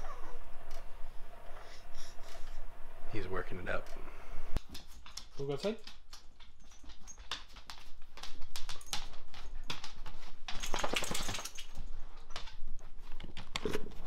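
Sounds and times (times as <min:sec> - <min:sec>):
dog claws clicking on wooden floor: 0:04.6 - 0:14.0.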